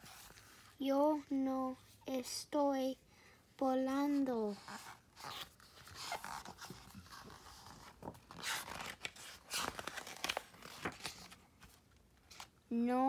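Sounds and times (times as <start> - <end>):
book pages rustling and turning: 0.0 - 0.8, 4.4 - 12.6.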